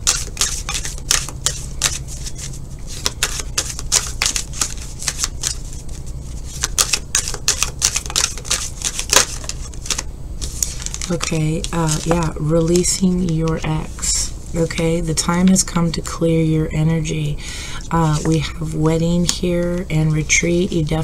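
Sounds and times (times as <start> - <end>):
cards being shuffled: 0.0 - 14.1.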